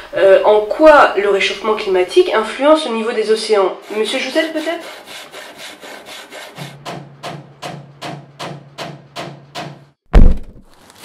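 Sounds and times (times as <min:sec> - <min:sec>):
handsaw cutting wood: 0:03.8 - 0:09.7
heavy thud: 0:07.0 - 0:10.7.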